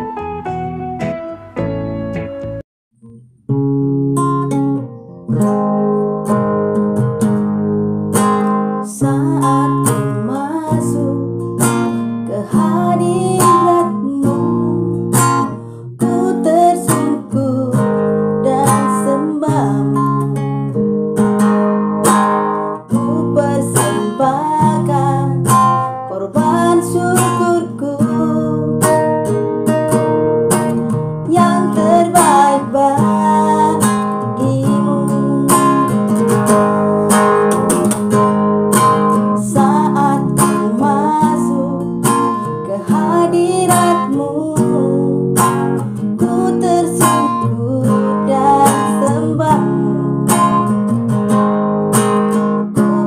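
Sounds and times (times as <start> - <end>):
acoustic guitar music: 0.0 - 53.0.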